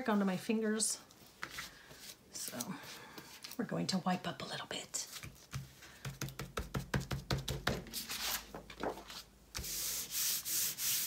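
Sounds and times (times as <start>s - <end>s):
hand rubbing paper page: 7.9s - 11.0s.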